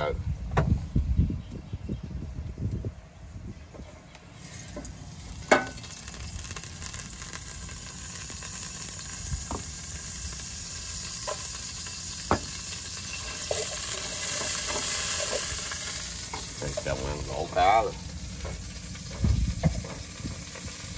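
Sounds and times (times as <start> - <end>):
fish sizzling in a pan: 4.4 - 20.9.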